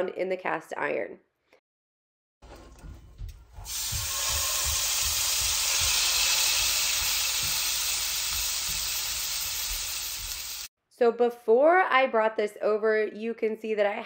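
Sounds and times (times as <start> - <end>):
meat sizzling in a skillet: 3.6 - 10.7.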